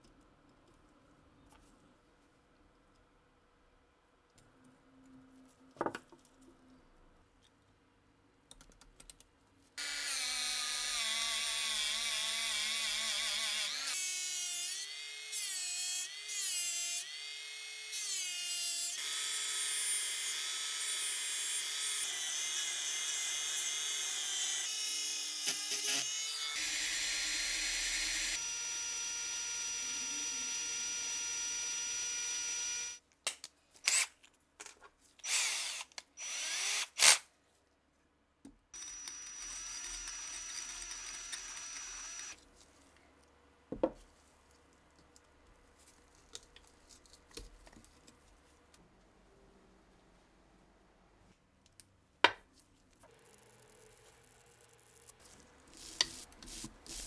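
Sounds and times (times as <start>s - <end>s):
rotary tool cutting whine: 38.8s - 42.4s.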